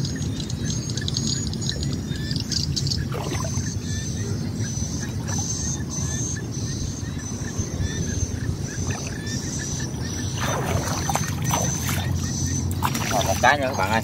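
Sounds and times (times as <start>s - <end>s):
high repeating chirping: 1.0s - 14.0s
water sloshing and splashing: 3.0s - 3.8s, 8.7s - 14.0s.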